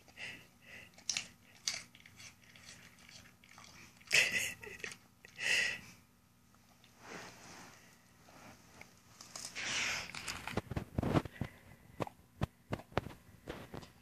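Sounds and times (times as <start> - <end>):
dog crunching an apple: 0.0 - 5.0, 9.2 - 11.3.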